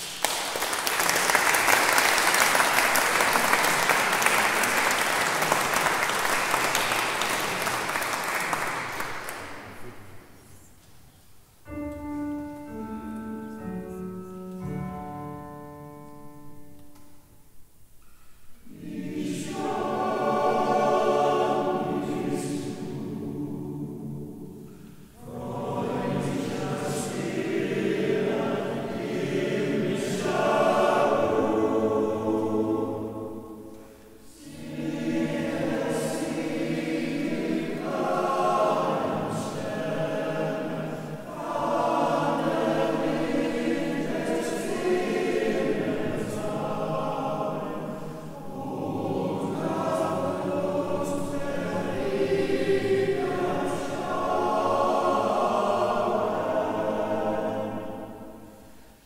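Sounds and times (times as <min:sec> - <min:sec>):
digital piano single notes: 0:11.7 - 0:17.2
male voice choir singing: 0:18.7 - 0:24.6, 0:25.2 - 0:33.6, 0:34.2 - 0:58.6.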